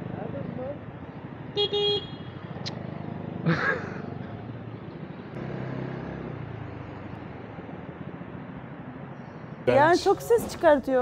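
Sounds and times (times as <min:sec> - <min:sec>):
motorcycle engine revving: 0:02.2 - 0:07.8.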